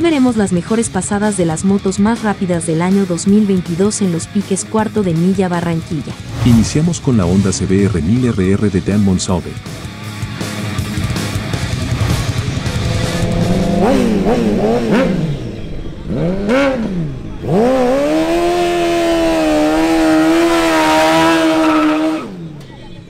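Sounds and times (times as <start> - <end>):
motorcycle engine revving: 0.0 - 7.0, 9.6 - 23.0.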